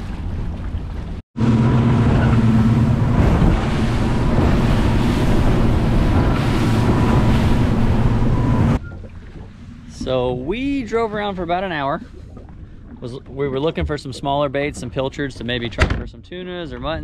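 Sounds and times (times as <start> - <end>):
water rushing off hull: 0.0 - 17.0
motorboat engine drone: 0.1 - 10.9
wind on microphone: 1.9 - 8.8.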